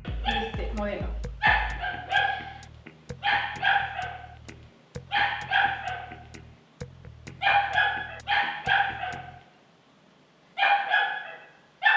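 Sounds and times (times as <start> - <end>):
dog barking: 1.4 - 2.6, 3.2 - 4.4, 5.1 - 6.2, 7.4 - 9.5, 10.6 - 11.9.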